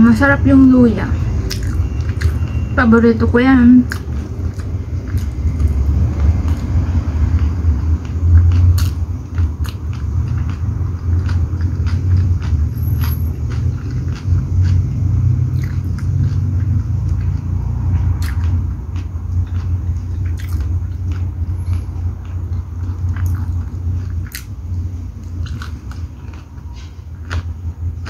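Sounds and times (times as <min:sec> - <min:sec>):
steady low rumble: 0:00.0 - 0:28.0
person chewing food: 0:01.2 - 0:02.7, 0:03.8 - 0:28.0
wet mouth and finger clicks: 0:13.5 - 0:17.4, 0:18.1 - 0:21.0, 0:24.2 - 0:24.5.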